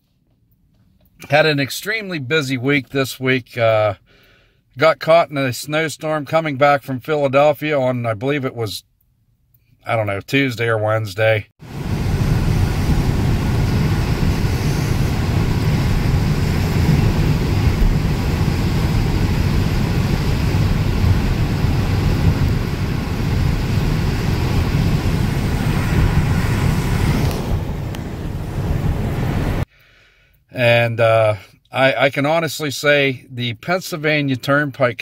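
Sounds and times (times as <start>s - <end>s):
road and tyre noise in car: 11.6s - 29.7s.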